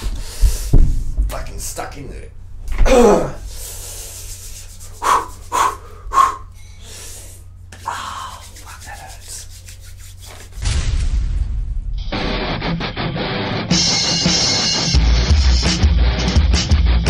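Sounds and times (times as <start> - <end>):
man grunting forcefully: 2.8 - 3.4
guitar rock music: 12.0 - 17.0.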